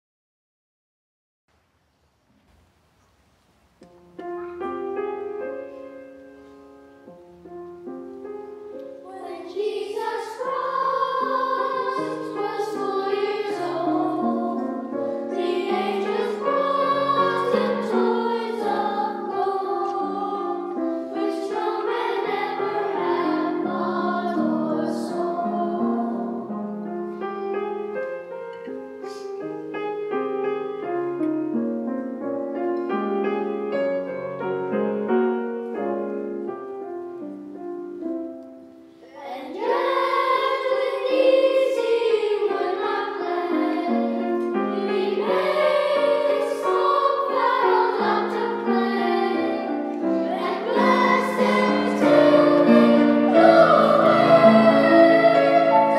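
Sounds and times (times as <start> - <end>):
grand piano: 2.1 - 55.9
children's choir singing: 8.5 - 29.4, 39.0 - 55.9.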